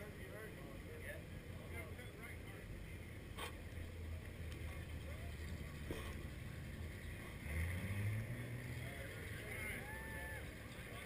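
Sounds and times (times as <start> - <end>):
vehicle engines idling: 0.0 - 11.0
engine revving: 4.8 - 10.8.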